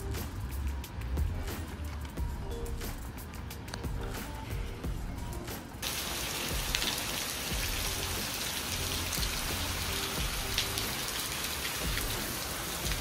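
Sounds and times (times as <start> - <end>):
rain on stone paving: 5.8 - 13.0.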